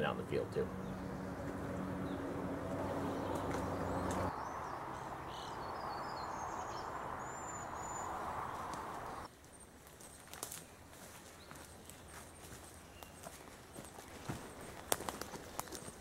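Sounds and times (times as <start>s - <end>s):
birds chirping: 0.0s - 9.3s, 10.6s - 16.0s.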